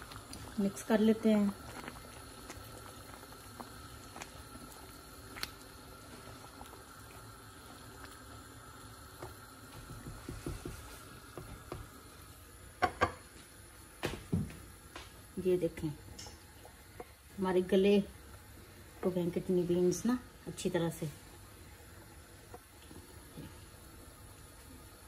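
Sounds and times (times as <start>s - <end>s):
curry bubbling in a pan: 0.0s - 25.0s
spatula knocking on pan: 9.8s - 10.8s, 12.8s - 13.2s.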